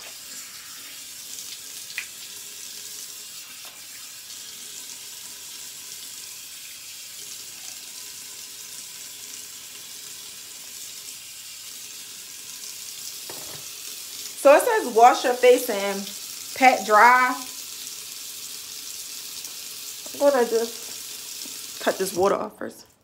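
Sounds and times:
bathroom sink tap running: 0.0 - 22.5
small knock: 13.3 - 13.6.

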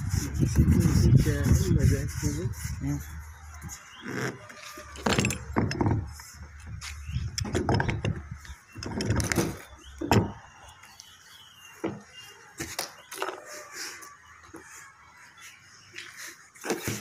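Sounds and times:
pipe wrench knocking and rattling: 5.0 - 6.2, 7.3 - 10.3.

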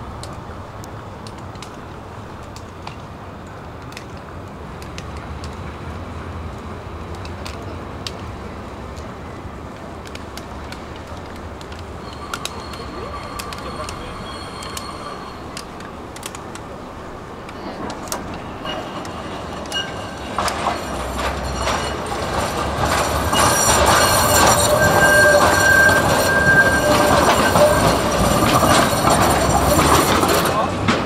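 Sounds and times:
tram rumbling on rails: 0.0 - 31.0
high steady squeal: 12.0 - 15.8, 18.5 - 30.6.

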